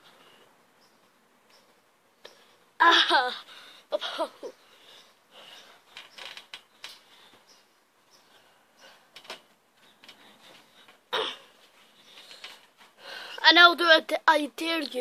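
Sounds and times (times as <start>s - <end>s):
trampoline springs creaking: 5.3s - 7.6s, 8.2s - 13.4s.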